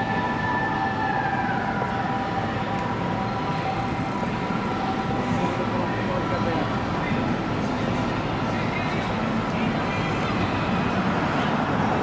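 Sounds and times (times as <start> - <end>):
siren: 0.0 - 6.6
city street noise: 0.0 - 12.0.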